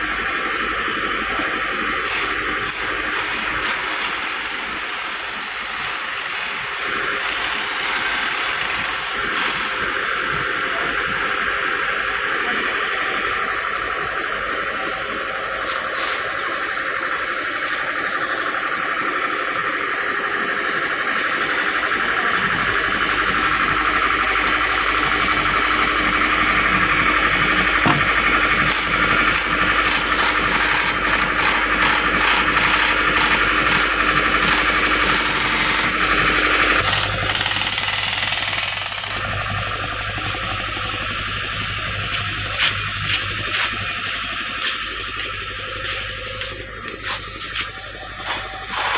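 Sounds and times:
diesel engine running: 0.0s - 48.9s
loud hiss: 15.6s - 16.6s
track chain clicking and rattling: 15.7s - 39.3s.

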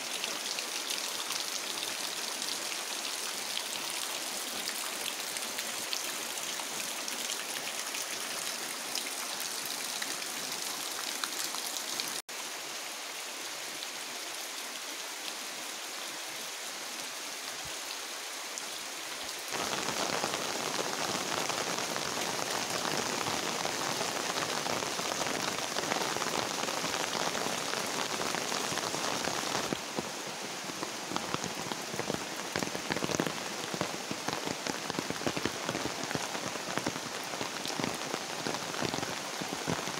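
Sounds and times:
rain falling: 0.0s - 39.9s
rain on a tiled roof: 0.0s - 39.9s.

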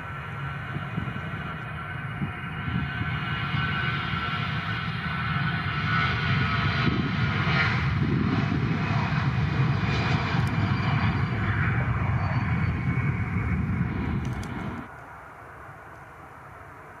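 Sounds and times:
jet engines rumbling: 0.0s - 17.0s.

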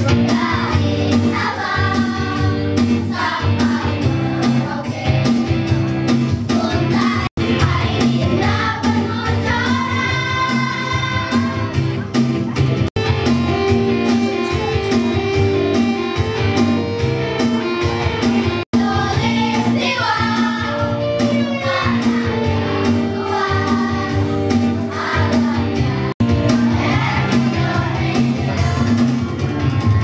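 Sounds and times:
children singing: 0.0s - 11.8s, 18.8s - 30.0s
guitar music: 11.1s - 18.6s.

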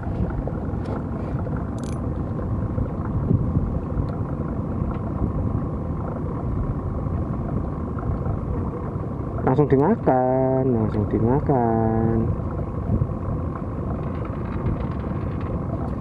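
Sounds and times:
wind buffeting microphone: 0.0s - 8.8s, 12.1s - 16.0s.

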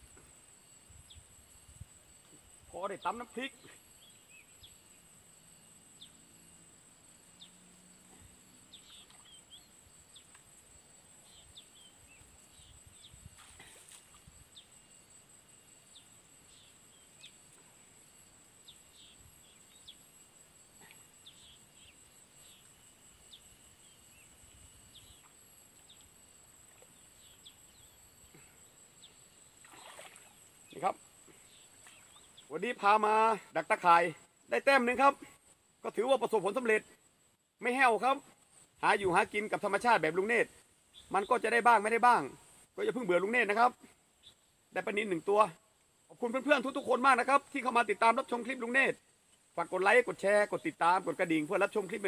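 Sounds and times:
high insect buzz: 0.0s - 35.9s
bird chirps: 8.7s - 10.4s.

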